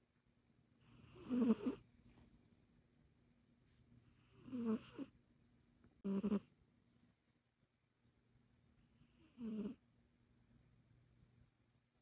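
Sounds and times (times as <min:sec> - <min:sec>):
cat snoring: 0:00.8 - 0:01.8, 0:04.1 - 0:05.1, 0:06.0 - 0:06.5, 0:09.0 - 0:09.8.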